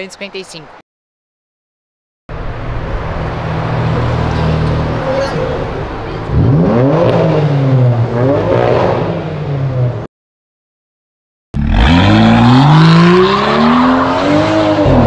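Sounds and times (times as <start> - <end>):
car engine accelerating hard: 2.3 - 10.1, 11.6 - 15.0.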